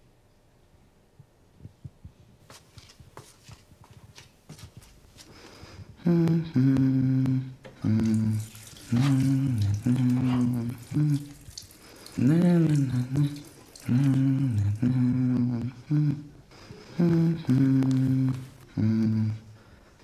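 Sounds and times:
man humming a tune: 6.0s - 11.4s, 12.2s - 19.6s.

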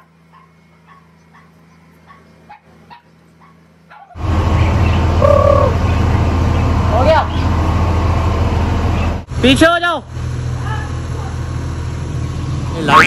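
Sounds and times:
rushing noise with low hum: 4.2s - 13.0s.

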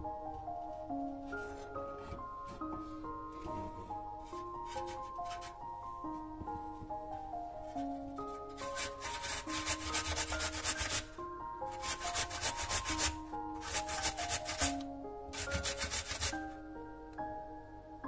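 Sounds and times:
soft background music: 0.0s - 18.0s
potato rasping on grater: 8.6s - 11.1s, 11.7s - 16.4s.

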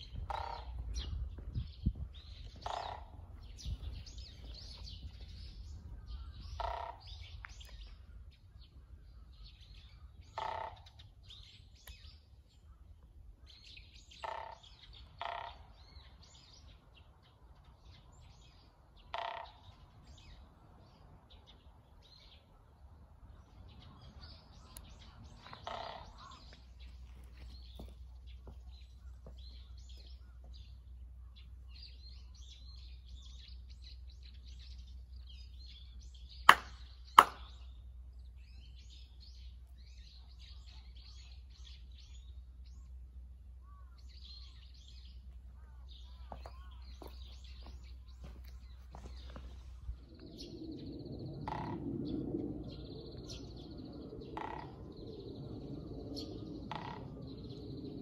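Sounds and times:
small birds chirping: 0.0s - 58.0s
sharp hand claps: 36.5s - 37.5s.

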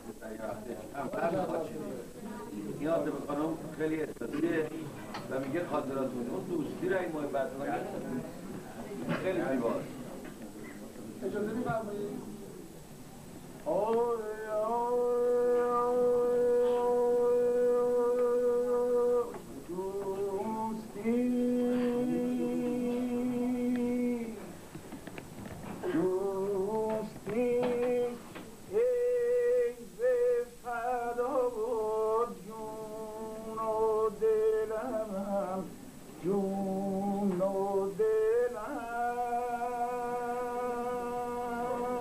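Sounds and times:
man singing wordless melody: 13.6s - 24.5s, 25.8s - 42.0s.

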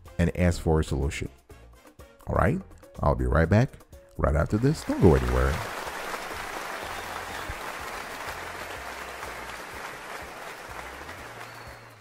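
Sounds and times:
crowd applause: 4.6s - 12.0s.

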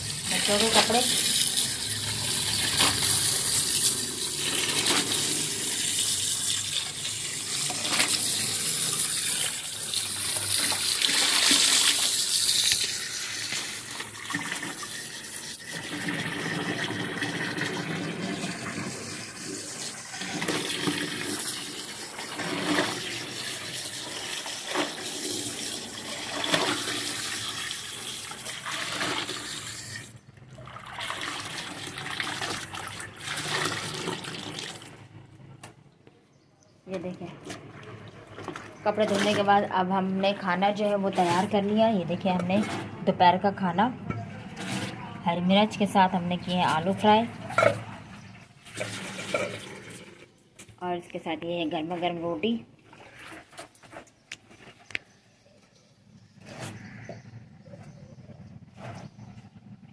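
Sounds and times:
tap water pouring into bucket: 0.0s - 35.2s, 37.4s - 39.5s, 48.6s - 50.7s
clothes scrubbed in soapy water: 0.1s - 30.0s, 37.6s - 41.8s.

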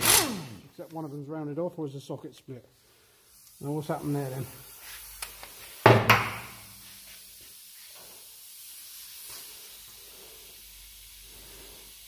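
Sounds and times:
air impact wrench burst: 0.0s - 0.8s
air hiss: 2.7s - 12.0s.

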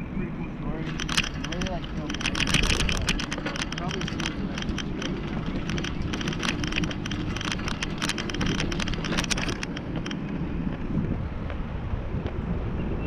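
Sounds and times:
wind rumbling on microphone: 0.0s - 13.0s
bicycle crackling clicks: 0.8s - 10.9s.

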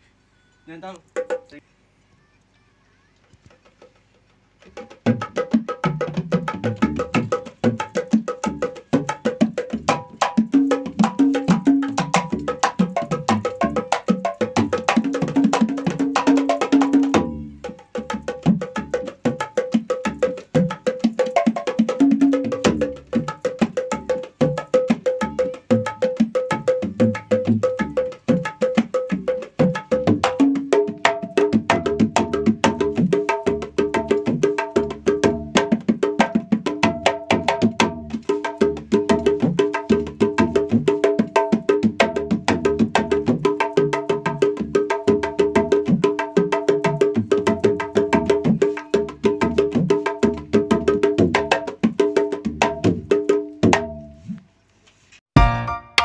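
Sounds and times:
hand drums played fast: 1.2s - 1.5s, 3.6s - 54.1s
backing music with held chords: 55.4s - 56.0s.

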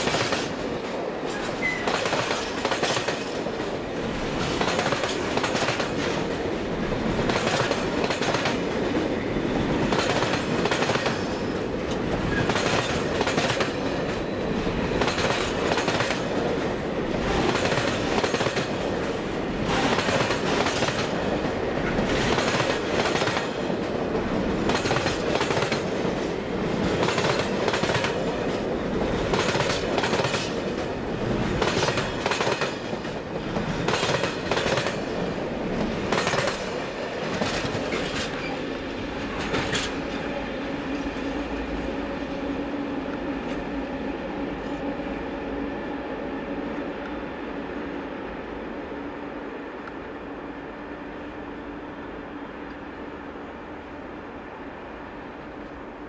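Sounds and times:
train wheels rumbling on rail: 0.0s - 53.4s
wheelsets clickety-clack: 4.4s - 6.3s, 24.7s - 26.2s, 35.8s - 38.6s.

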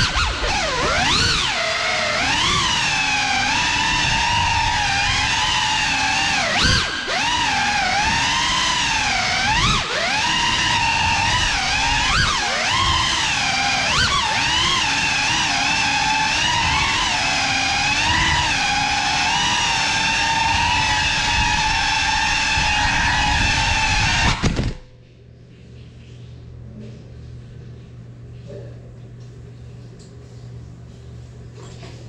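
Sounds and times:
drone motors whining: 0.0s - 24.8s.

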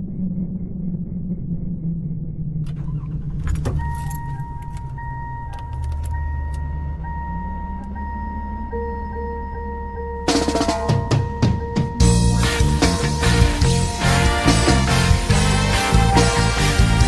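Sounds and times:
car engine running low: 0.0s - 17.0s
keys jangling: 3.4s - 6.2s
high warning chime: 3.5s - 16.4s.

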